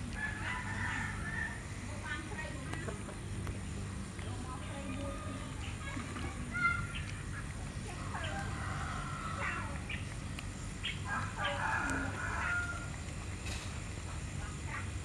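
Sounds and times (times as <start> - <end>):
low background noise: 0.0 - 15.0
chickens clucking: 2.7 - 14.2.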